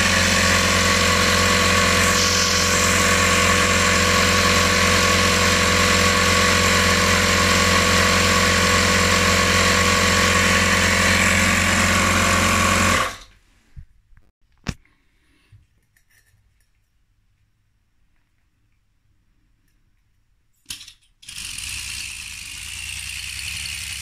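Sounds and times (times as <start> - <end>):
air compressor running: 0.0 - 13.3, 21.2 - 24.0.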